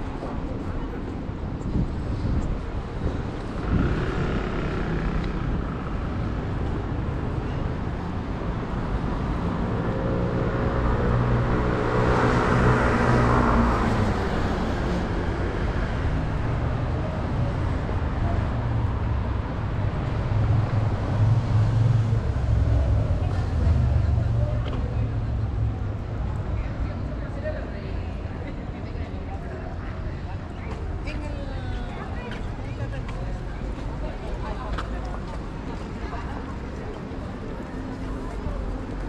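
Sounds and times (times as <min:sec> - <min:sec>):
low rumble of traffic: 0:00.0 - 0:39.0
motor vehicle passing by: 0:03.3 - 0:06.3.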